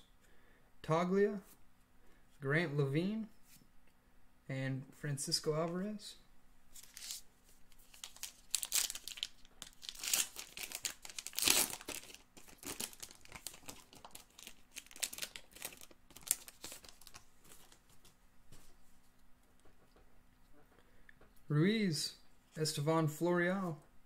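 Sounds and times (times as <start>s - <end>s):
wrapper crinkling and tearing: 6.8s - 17.9s.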